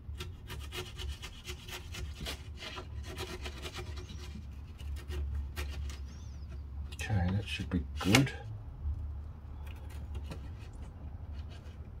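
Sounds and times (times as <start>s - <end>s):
blade scraping and cutting: 0.0s - 6.4s.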